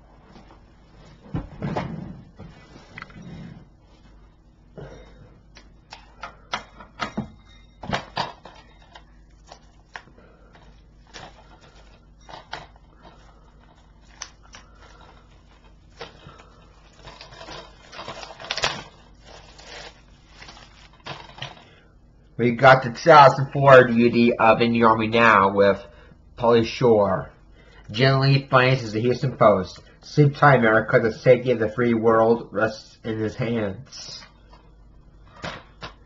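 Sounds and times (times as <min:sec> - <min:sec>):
packaging rustling: 0:08.1 - 0:21.7.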